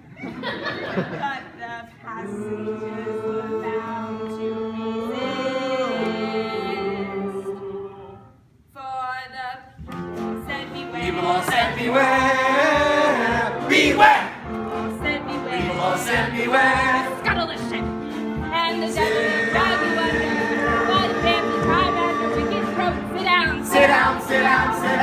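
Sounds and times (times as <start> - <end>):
chorus of young voices singing: 2.1 - 8.3, 10.9 - 17.2, 18.7 - 25.0.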